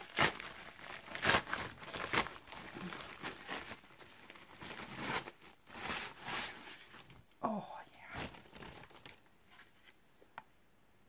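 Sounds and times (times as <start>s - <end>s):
plastic wrapping rustling: 0.0s - 7.3s, 8.0s - 10.0s.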